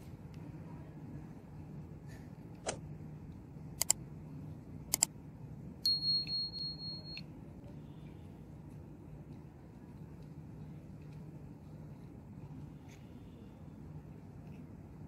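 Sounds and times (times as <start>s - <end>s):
high-pitched beep: 5.9s - 7.2s.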